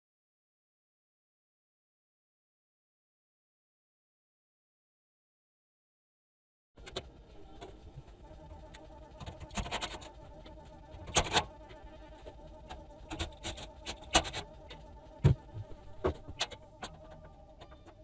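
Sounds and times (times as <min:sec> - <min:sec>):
faint steady hum: 0:06.8 - 0:18.0.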